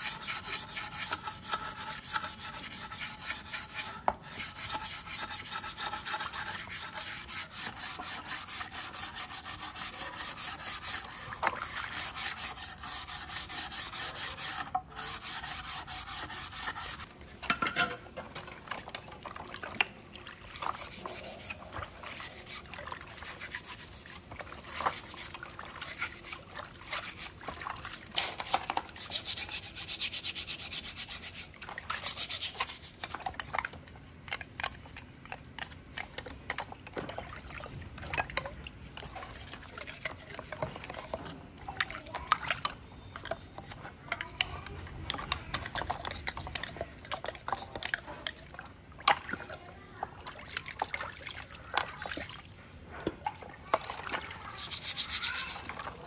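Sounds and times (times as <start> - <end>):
steel wool scrubbing metal: 0.0 - 17.1, 20.5 - 27.6, 28.2 - 33.2, 38.8 - 41.4, 54.3 - 56.0
water splashes: 47.1 - 52.6.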